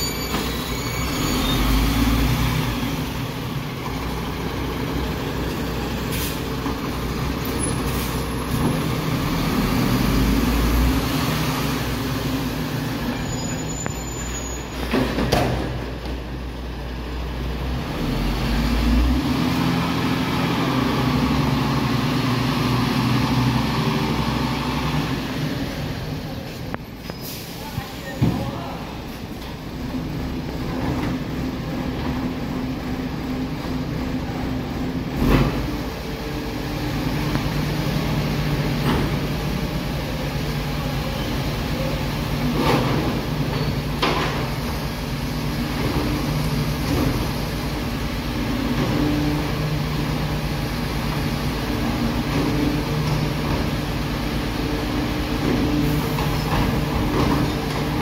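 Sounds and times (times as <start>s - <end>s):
diesel truck engine running: 0.4s - 13.2s.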